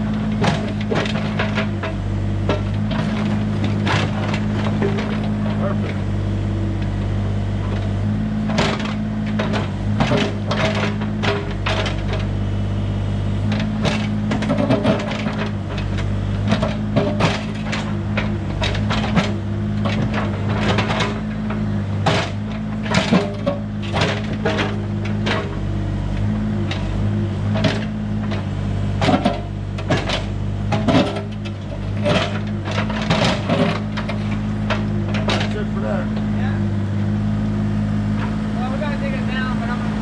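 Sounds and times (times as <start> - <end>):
diesel engine running: 0.0 - 40.0
rocks knocking against steel bucket: 13.5 - 25.6, 27.5 - 36.2.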